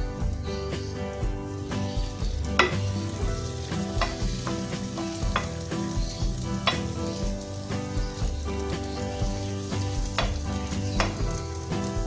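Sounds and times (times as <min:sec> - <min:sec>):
background music: 0:00.0 - 0:12.0
frying sizzle: 0:00.0 - 0:12.0
metal spoon tapping on pan: 0:02.5 - 0:03.0, 0:03.9 - 0:07.2, 0:10.1 - 0:11.4.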